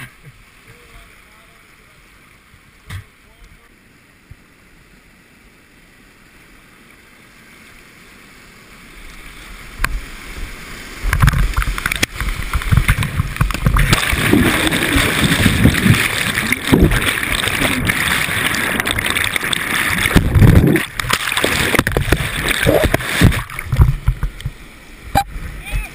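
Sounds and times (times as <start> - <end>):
rushing whitewater: 0.0 - 25.9
water churning over boat: 10.3 - 25.9.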